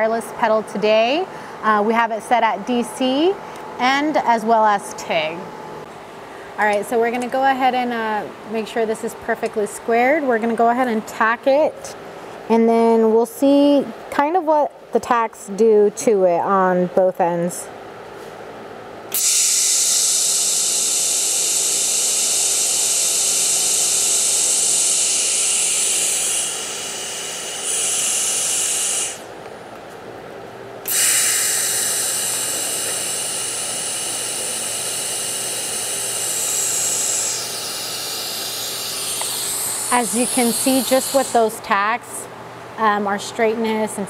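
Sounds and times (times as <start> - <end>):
welding arc hissing: 19.1 - 29.4, 30.8 - 41.6.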